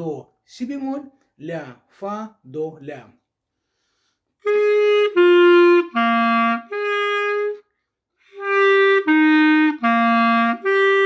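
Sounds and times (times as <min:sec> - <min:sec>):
clarinet playing held notes: 0:04.4 - 0:11.0.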